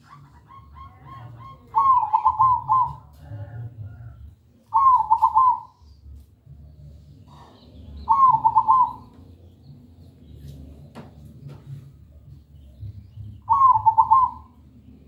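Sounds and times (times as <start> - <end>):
dove cooing: 0.0 - 5.8, 7.3 - 9.3, 13.4 - 14.7
faint low rumble: 0.0 - 15.0.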